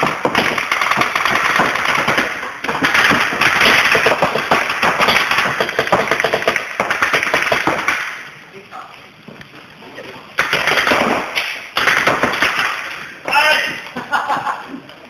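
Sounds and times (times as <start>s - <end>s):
balls smacking off bunkers: 0.0s - 8.2s, 10.4s - 14.5s
rapid marker fire: 0.0s - 8.4s, 10.4s - 13.2s.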